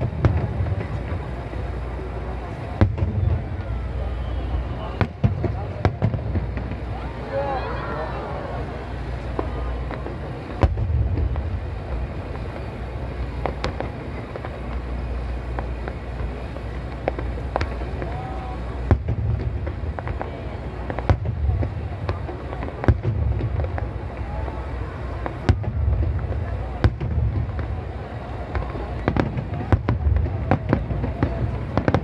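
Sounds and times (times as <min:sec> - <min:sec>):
crowd talking: 0:00.0 - 0:32.0
low rumble: 0:08.2 - 0:25.0
firework shells bursting: 0:08.5 - 0:32.0.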